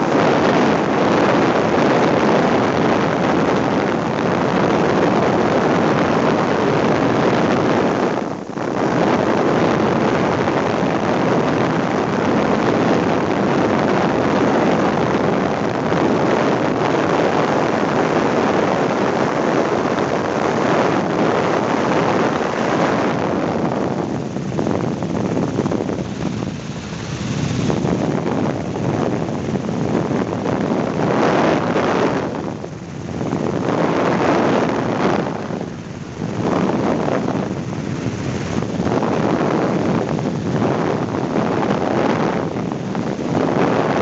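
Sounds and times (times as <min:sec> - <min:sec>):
helicopter rotor and engine rush: 0:00.0 - 0:44.0.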